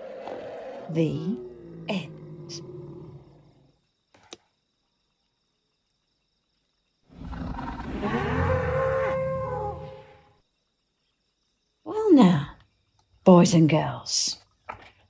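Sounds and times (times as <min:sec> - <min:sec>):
deep dinosaur roar: 0:00.0 - 0:03.8, 0:07.1 - 0:10.2.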